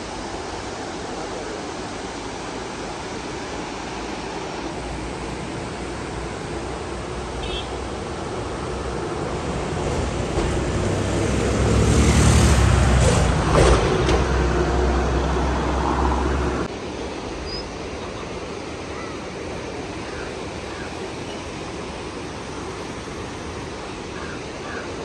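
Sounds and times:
vehicle engine and road noise: 0:00.0 - 0:18.8
rushing river water: 0:00.0 - 0:25.0.

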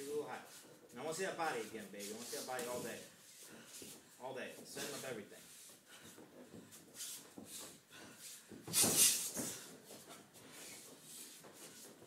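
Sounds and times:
shuffling feet: 0:00.0 - 0:12.0
short hissing breaths: 0:08.1 - 0:09.7.

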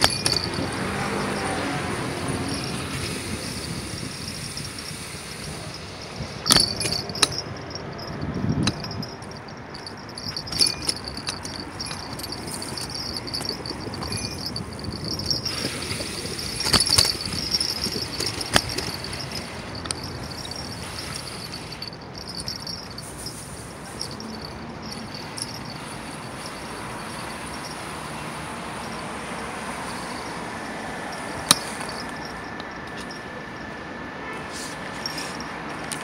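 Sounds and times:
bicycle knocks and rattles: 0:00.0 - 0:01.7, 0:02.5 - 0:23.0, 0:31.4 - 0:33.2
bicycle tyres rumbling on pavement: 0:08.0 - 0:32.4.

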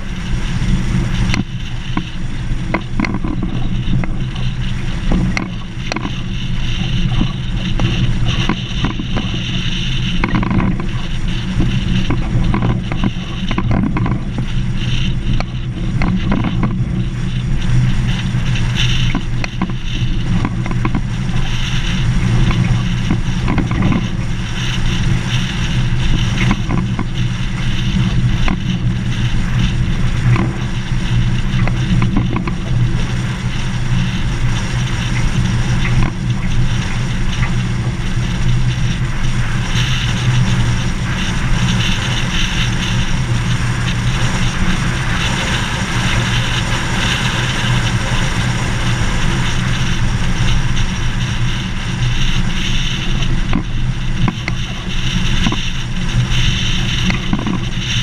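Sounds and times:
gravel clicks and rattles: 0:00.0 - 0:58.0
vehicle engine drone: 0:00.0 - 0:58.0.

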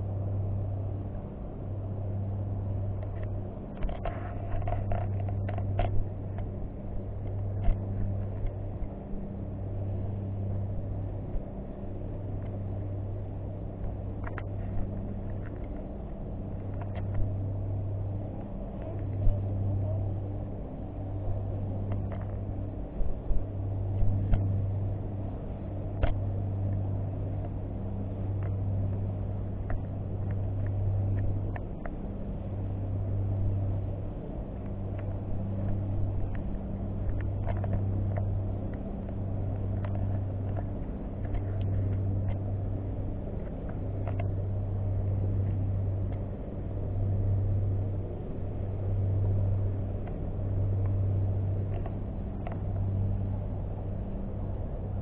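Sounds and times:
low droning hum: 0:00.0 - 0:55.0
faint clicks: 0:34.6 - 0:46.3.

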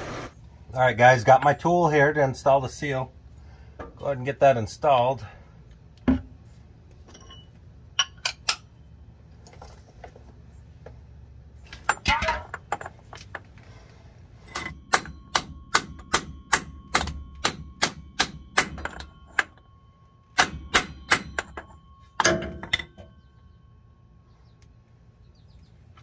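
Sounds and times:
hammer striking metal: 0:14.5 - 0:19.7, 0:20.3 - 0:23.3.

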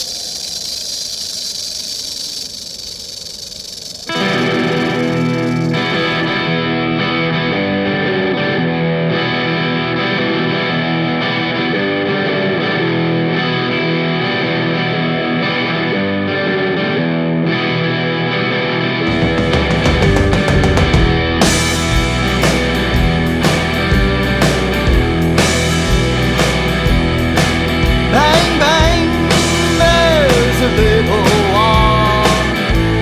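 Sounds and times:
steady hiss: 0:00.0 - 0:06.4
guitar-led music: 0:04.1 - 0:33.0.

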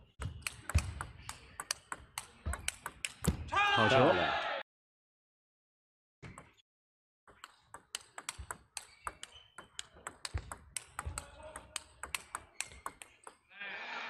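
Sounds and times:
table tennis ball clicking: 0:00.2 - 0:03.4, 0:07.3 - 0:13.5
shoe squeaks: 0:08.8 - 0:10.0, 0:12.4 - 0:13.2.

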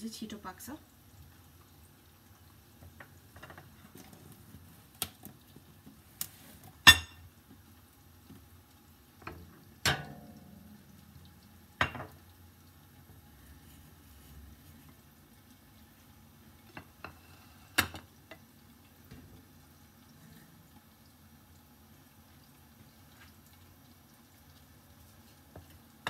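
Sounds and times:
potatoes frying in oil: 0:00.0 - 0:26.0
oil pops and ticks: 0:04.9 - 0:06.4.

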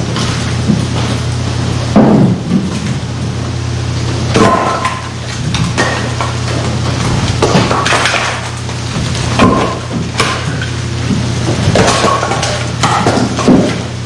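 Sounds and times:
steady low hum: 0:00.0 - 0:14.0
firewood knocking and clattering: 0:04.3 - 0:13.9.

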